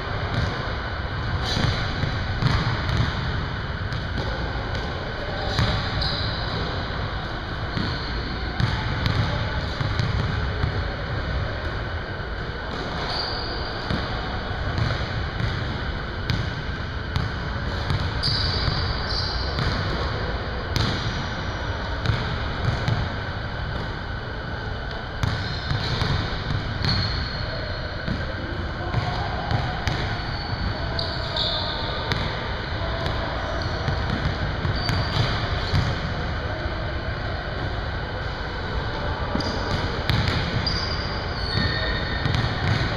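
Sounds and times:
gym hum: 0:00.0 - 0:42.9
basketballs bouncing on wood floor: 0:01.4 - 0:03.2, 0:40.1 - 0:40.7
short high squeaks: 0:05.9 - 0:06.6, 0:13.0 - 0:13.8, 0:18.2 - 0:19.5, 0:30.3 - 0:32.0.

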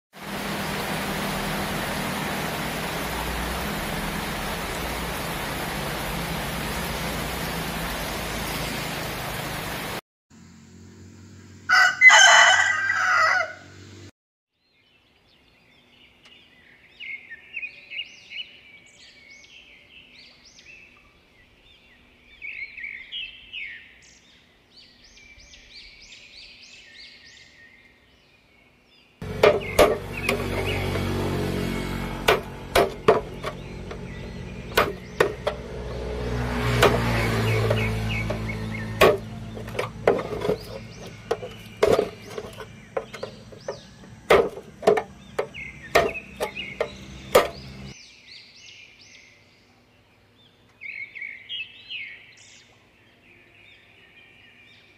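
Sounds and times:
steady rain: 0:00.2 - 0:10.0.

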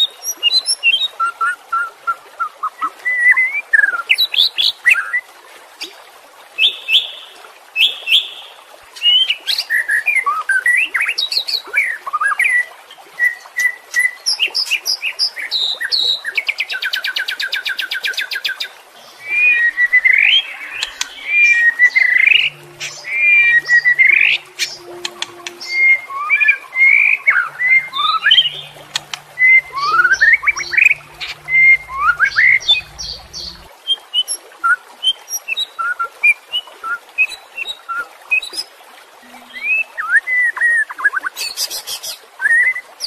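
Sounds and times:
songbird whistling song: 0:19.0 - 0:38.6.

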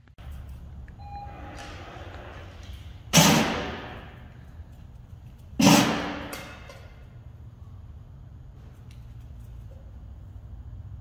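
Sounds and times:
loud echoing bang: 0:03.1 - 0:04.3, 0:05.6 - 0:06.6.

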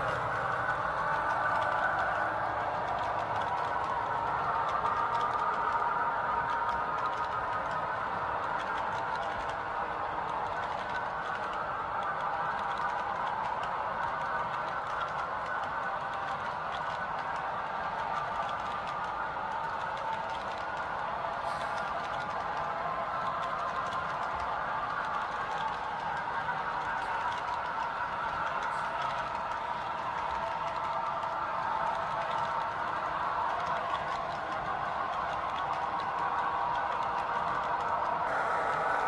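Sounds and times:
faint clicks of wheels: 0:00.0 - 0:39.0
model train wheels whirring on rail: 0:00.0 - 0:39.0.

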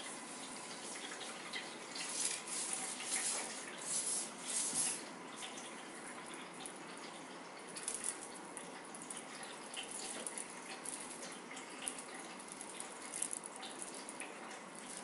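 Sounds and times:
feather toy swishing: 0:02.0 - 0:05.0.

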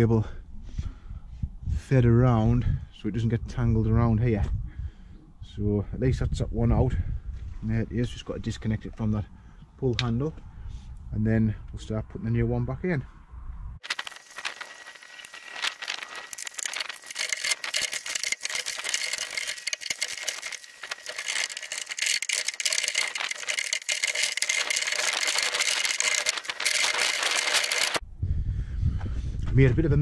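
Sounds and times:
metal and plastic parts rattling: 0:13.8 - 0:28.0.

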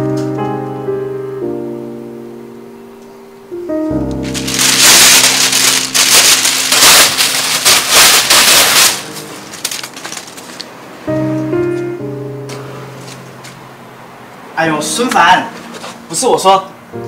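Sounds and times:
paper crumpling: 0:04.2 - 0:10.7.

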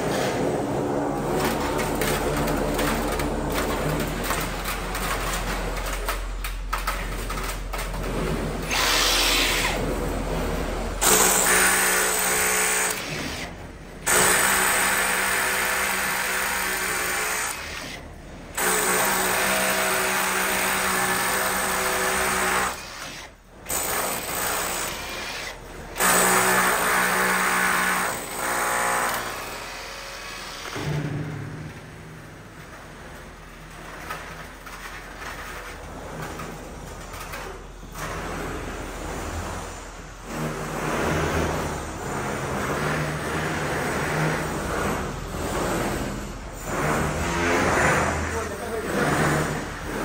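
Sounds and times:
hammer drill boring into masonry: 0:08.7 - 0:09.8, 0:11.0 - 0:13.5, 0:14.1 - 0:18.0, 0:18.6 - 0:30.8.

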